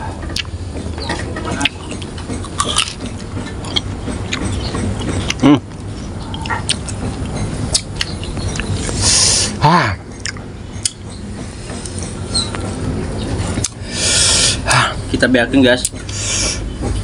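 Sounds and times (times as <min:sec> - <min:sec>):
chewing and crunching: 0:01.4 - 0:09.0.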